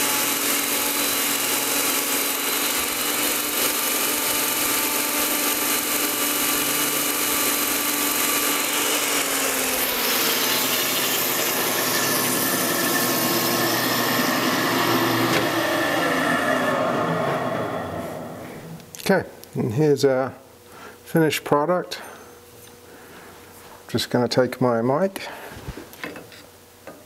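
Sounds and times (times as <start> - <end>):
belt polishing machine running: 0.0 - 18.6.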